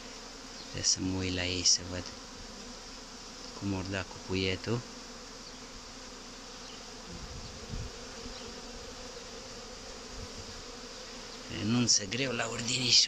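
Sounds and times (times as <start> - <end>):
honeybees buzzing: 0.0 - 13.0
faint low thumps: 7.1 - 8.0.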